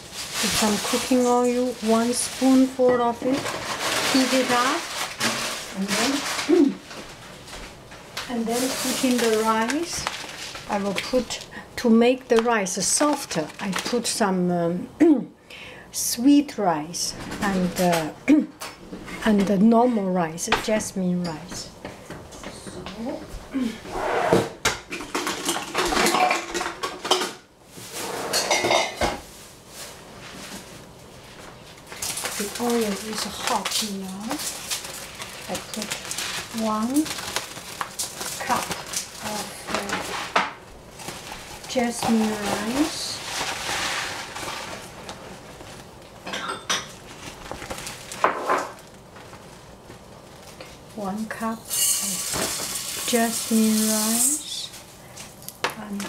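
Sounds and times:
pots and utensils clattering: 0:00.0 - 0:07.1, 0:24.2 - 0:29.3, 0:38.2 - 0:44.9, 0:46.2 - 0:48.8, 0:51.6 - 0:54.6
kitchenware clatter: 0:24.1 - 0:29.3, 0:46.2 - 0:47.1, 0:48.2 - 0:48.8, 0:51.6 - 0:54.6
kitchenware clinking: 0:24.7 - 0:27.5, 0:28.1 - 0:29.2, 0:46.2 - 0:47.0, 0:51.6 - 0:54.5.

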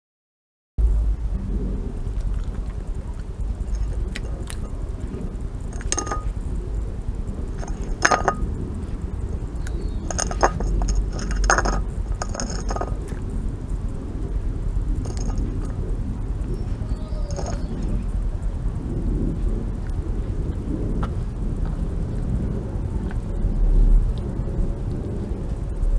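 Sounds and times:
steady low rumble: 0:00.8 - 0:25.9
teeth clinking against ceramic dish: 0:03.6 - 0:06.4, 0:07.6 - 0:08.5, 0:09.6 - 0:13.2, 0:15.0 - 0:15.8, 0:17.0 - 0:18.0.

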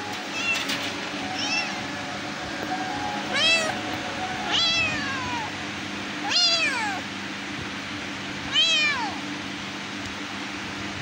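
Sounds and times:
cat meowing: 0:04.5 - 0:05.5, 0:06.2 - 0:07.0, 0:08.5 - 0:09.2.

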